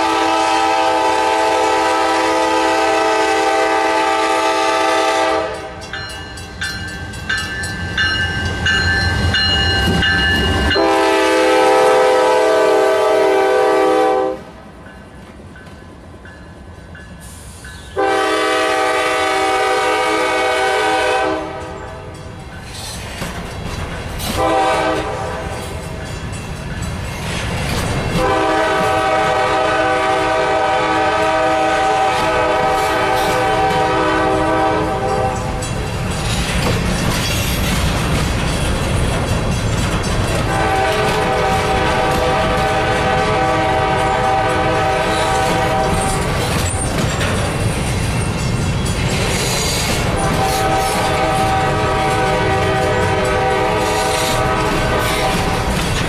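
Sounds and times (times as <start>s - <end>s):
locomotive air horn: 0.0s - 5.8s, 10.7s - 14.5s, 18.0s - 22.0s, 24.3s - 25.7s, 28.2s - 35.6s, 40.5s - 46.4s, 49.7s - 55.7s
train wheels clattering over rail joints: 21.6s - 29.2s, 32.0s - 56.0s.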